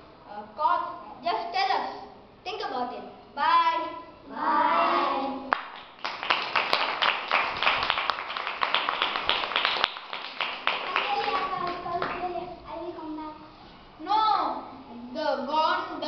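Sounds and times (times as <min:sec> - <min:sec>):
boy speaking: 0:00.5 - 0:05.5, 0:10.8 - 0:16.0
children applauding: 0:05.5 - 0:12.3.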